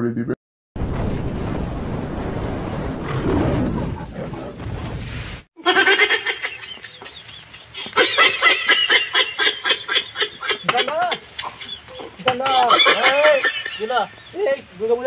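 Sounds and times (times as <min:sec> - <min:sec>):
rumbling noise: 0:00.8 - 0:05.5
chickens clucking and squawking: 0:05.6 - 0:14.4.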